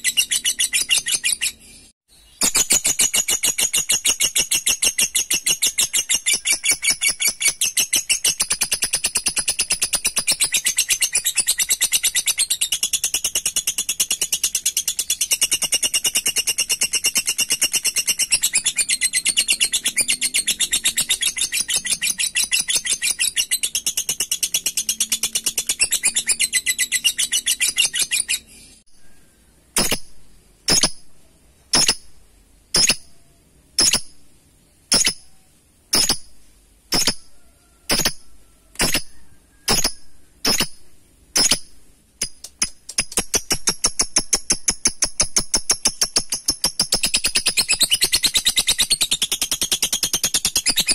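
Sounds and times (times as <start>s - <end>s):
lovebird sharp chirps: 0.0s - 34.2s, 34.9s - 50.9s
lovebird rattling chatter: 41.4s - 50.9s.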